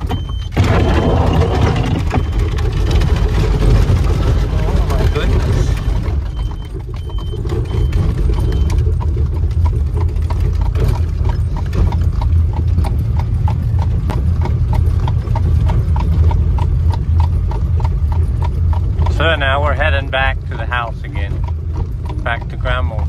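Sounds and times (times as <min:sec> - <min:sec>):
buggy wheels rumbling on road: 0:00.0 - 0:23.0
horse hooves on asphalt: 0:01.9 - 0:23.0.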